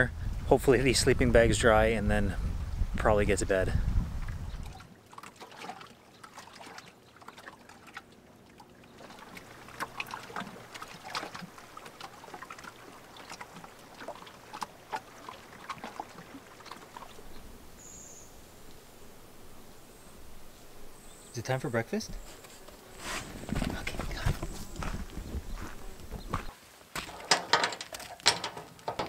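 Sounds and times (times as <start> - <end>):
small splashes and clicks: 4.2 - 17.3
water lapping at shore: 4.2 - 18.6.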